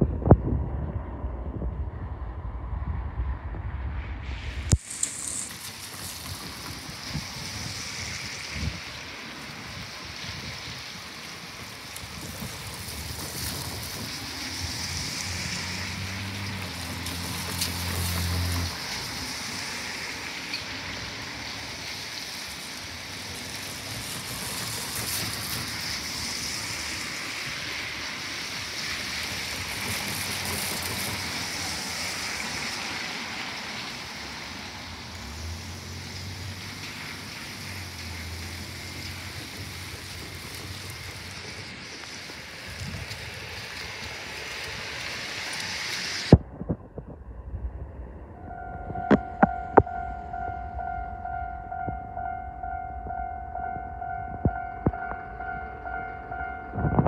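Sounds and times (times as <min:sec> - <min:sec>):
rain falling: 0:04.5 - 0:46.4.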